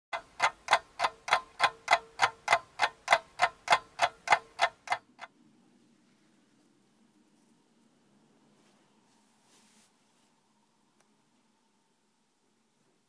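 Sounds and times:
clock ticking: 0:00.1 - 0:05.3.

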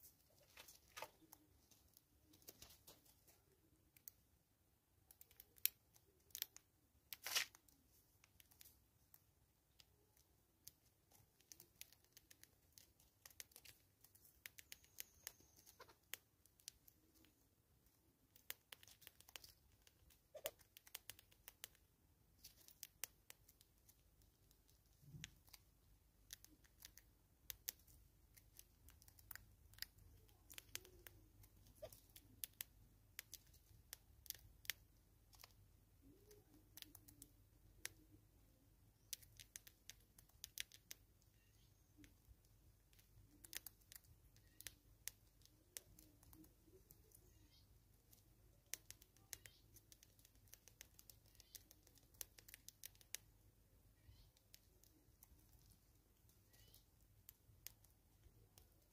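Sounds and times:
clicks and crunches of feeding: 0:05.0 - 0:17.4, 0:18.3 - 0:38.1, 0:39.0 - 0:41.1, 0:48.0 - 0:53.3.

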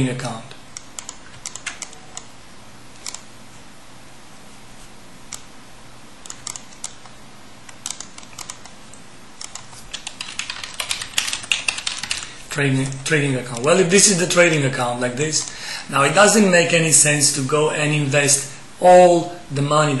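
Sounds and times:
faint steady hiss: 0:00.0 - 0:20.0
computer mouse clicks: 0:00.8 - 0:02.3, 0:03.0 - 0:03.3, 0:05.3 - 0:05.5, 0:06.2 - 0:12.3
keyboard key presses: 0:00.8 - 0:02.3, 0:07.7 - 0:12.3.

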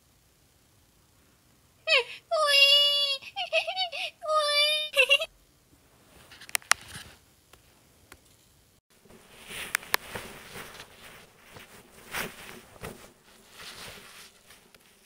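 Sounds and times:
rustling: 0:05.8 - 0:15.0.

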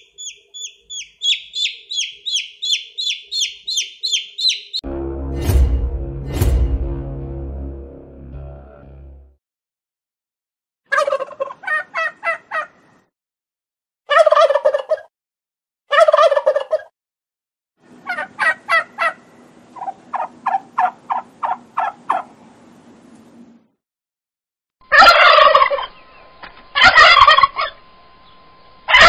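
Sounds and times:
turkey gobbling: 0:00.0 - 0:04.8, 0:10.9 - 0:12.8, 0:14.1 - 0:15.1, 0:15.9 - 0:16.9, 0:18.0 - 0:22.3, 0:24.9 - 0:26.0, 0:26.8 - 0:27.8.

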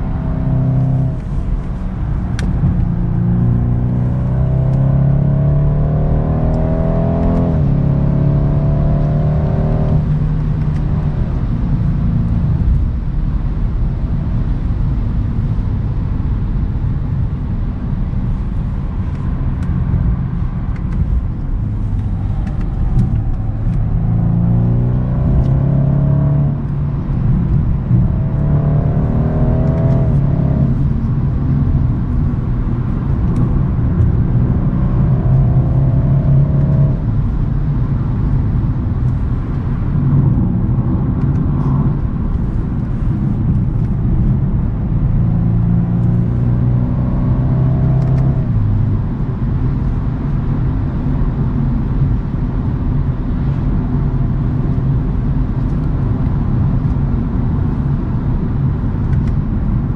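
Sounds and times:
car engine revving: 0:00.0 - 0:12.9, 0:19.0 - 0:49.2
road noise: 0:00.0 - 0:59.9.

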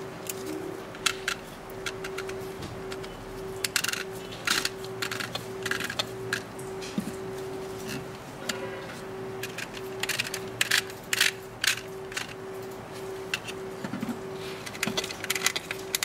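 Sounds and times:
faint steady hum: 0:00.0 - 0:16.0
plastic clicks: 0:09.4 - 0:14.0, 0:14.6 - 0:16.0.

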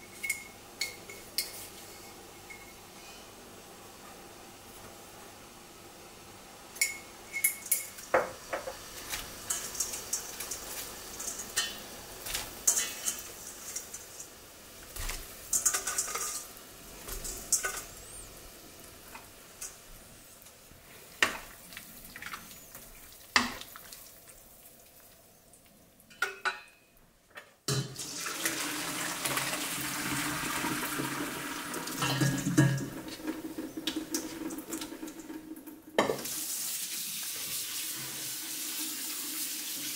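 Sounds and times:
glass jar and kitchenware clinking: 0:00.1 - 0:02.8, 0:06.8 - 0:08.0
water pouring into a colander: 0:28.0 - 0:39.9.

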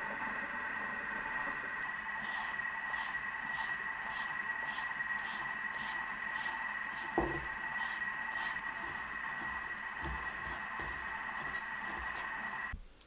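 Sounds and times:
peeler scraping a carrot: 0:02.2 - 0:09.5
knock on wooden cutting board: 0:07.2 - 0:07.5.

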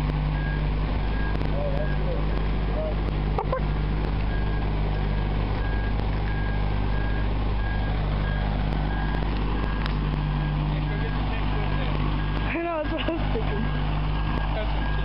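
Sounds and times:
backup alarm beeping: 0:04.3 - 0:15.0.

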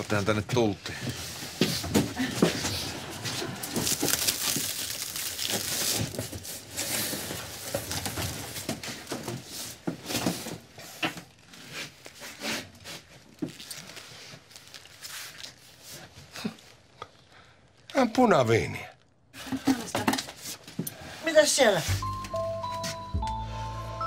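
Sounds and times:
plastic wrap rustling and tearing: 0:00.0 - 0:18.0.

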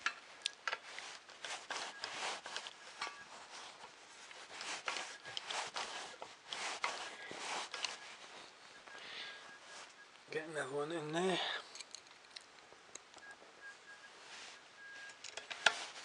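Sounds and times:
scraping and rubbing: 0:00.4 - 0:10.0, 0:13.6 - 0:16.0.

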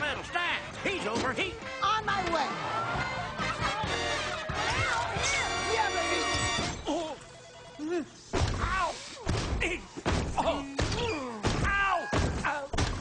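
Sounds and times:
heavy thumps: 0:08.3 - 0:13.0.

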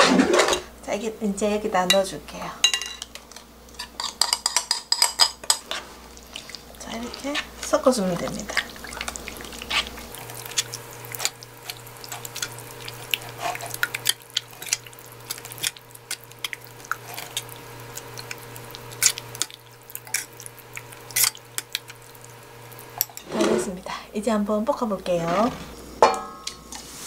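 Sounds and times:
metal spoon clinking on glass bowl: 0:02.6 - 0:03.1.

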